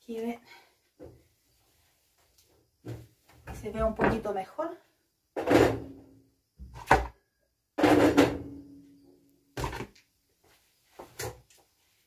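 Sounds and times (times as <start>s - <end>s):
things knocked down in kitchen: 5.4s - 6.0s, 7.8s - 8.6s.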